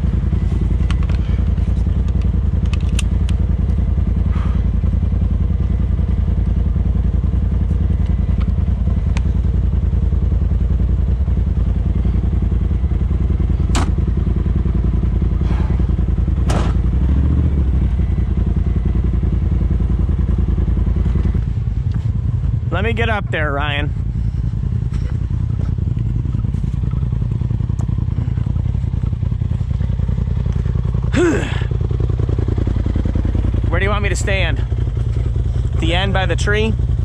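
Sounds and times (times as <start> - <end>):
vehicle engine running at low speed: 0.0 - 37.0.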